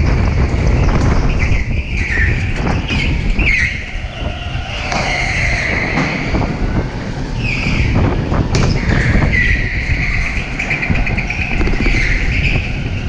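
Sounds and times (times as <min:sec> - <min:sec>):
go-kart rumble: 0:00.0 - 0:13.0
wind buffeting microphone: 0:00.0 - 0:13.0
tyres squealing on concrete: 0:01.2 - 0:13.0.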